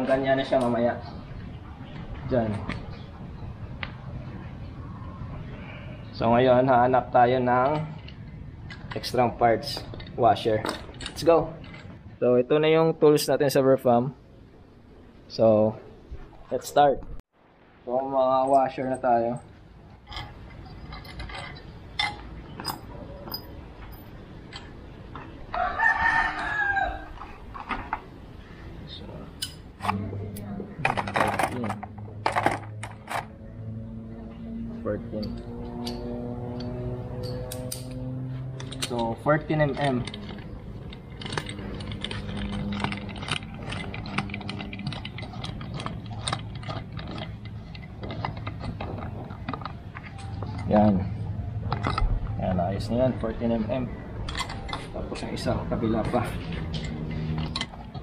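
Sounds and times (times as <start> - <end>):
low steady hum: 0.0 - 58.0
hand tools clinking on metal: 20.1 - 24.7, 35.1 - 53.1
rooster crowing: 25.5 - 27.4.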